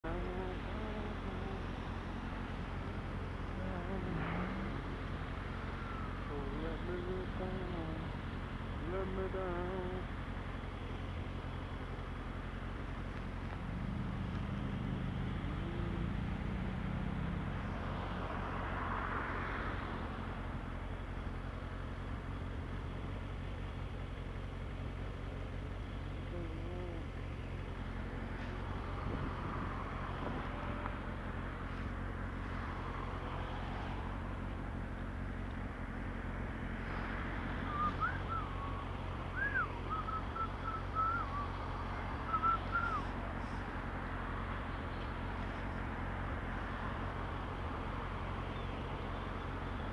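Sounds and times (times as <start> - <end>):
motorcycle engine idling: 0.0 - 17.8, 19.9 - 36.8
cars passing by: 0.0 - 49.9
warbling whistled notes: 37.7 - 38.8, 39.4 - 41.5.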